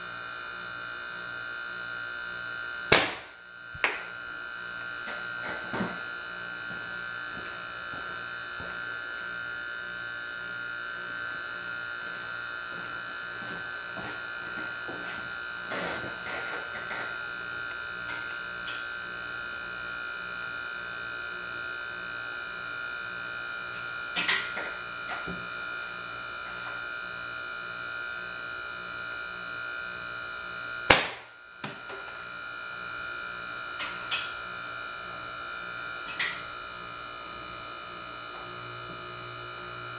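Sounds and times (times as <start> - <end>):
electrical hum: 0.0 - 39.9
air gun shot crack: 2.9 - 3.4, 30.9 - 31.3.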